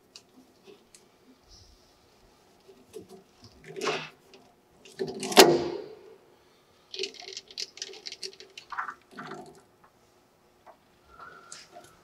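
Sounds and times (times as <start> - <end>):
light clicks and rattles: 6.9 - 10.0.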